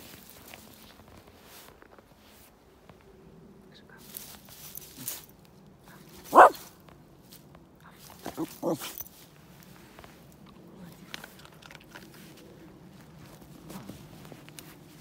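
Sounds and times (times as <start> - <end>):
dog barking: 6.3 - 6.7.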